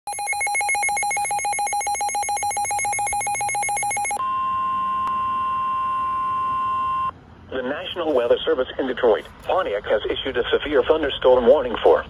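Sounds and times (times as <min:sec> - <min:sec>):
rapid buzzy alarm beeps: 0:00.1 - 0:04.2
steady warning alarm tone: 0:00.1 - 0:07.1.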